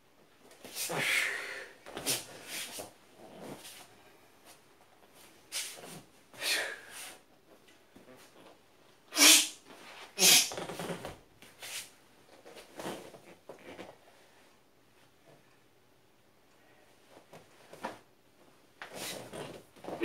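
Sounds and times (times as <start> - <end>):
hissing mouth sounds: 9.1 - 9.6, 10.2 - 10.6.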